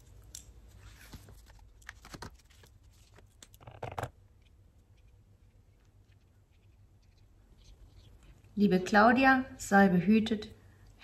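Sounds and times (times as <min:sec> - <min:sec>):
paper rustling: 0:00.7 - 0:04.1.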